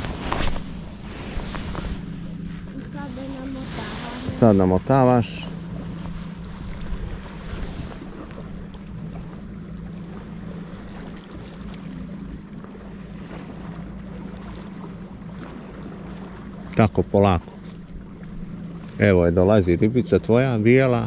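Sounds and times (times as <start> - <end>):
wind on microphone: 0.0 - 4.9
steady low hum: 0.0 - 21.0.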